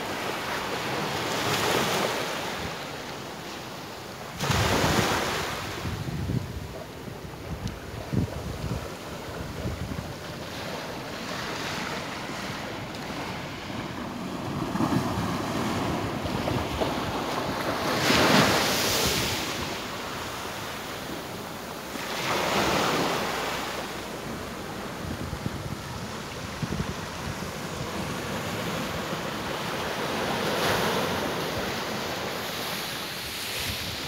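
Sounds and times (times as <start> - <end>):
surf breaking on beach: 4.3 - 34.0
wind buffeting microphone: 4.4 - 20.4, 24.0 - 31.9.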